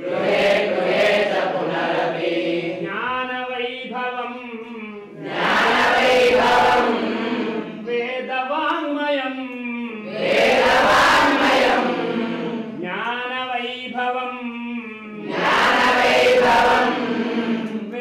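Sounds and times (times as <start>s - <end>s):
voices chanting in unison: 0.0s - 3.0s, 5.2s - 7.9s, 10.0s - 12.8s, 15.2s - 18.0s.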